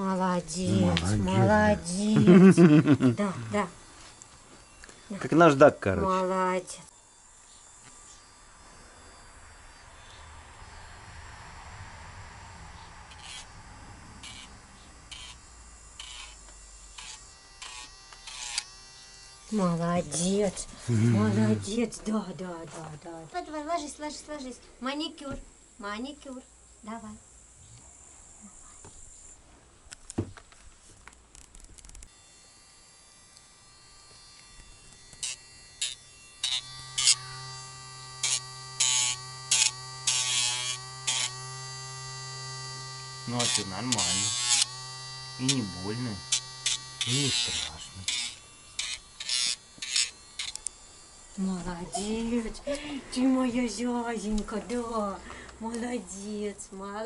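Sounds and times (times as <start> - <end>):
nail grinder whining: 0.4 - 10.8, 12.8 - 22.2, 31.4 - 55.5
grinding on dog claws: 33.3 - 52.4.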